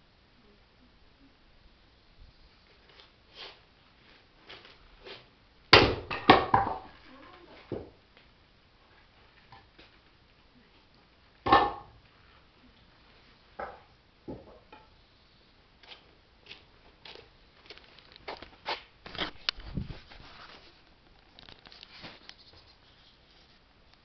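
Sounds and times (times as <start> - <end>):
maul striking log: 5.7 - 6.9, 11.4 - 12.0
shuffling: 15.9 - 23.6.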